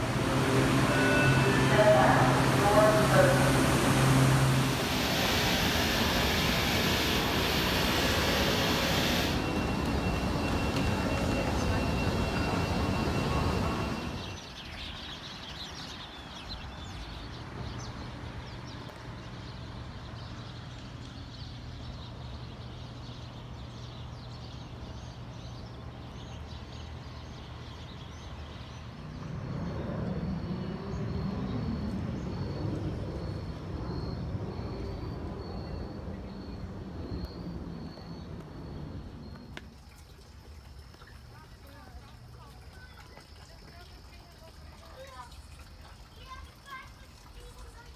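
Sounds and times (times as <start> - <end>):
steady low hum: 0.0 - 14.3
escalator whine: 0.0 - 14.4, 29.2 - 39.7
passing traffic: 0.0 - 14.6, 24.7 - 39.7.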